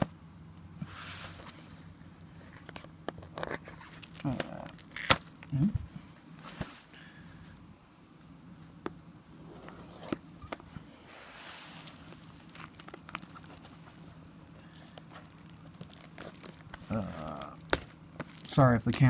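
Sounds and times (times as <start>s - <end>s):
faint low hum: 0.0s - 19.0s
plastic wrap crinkling: 2.5s - 5.5s, 11.6s - 19.0s
fingers picking at plastic wrap: 11.8s - 19.0s.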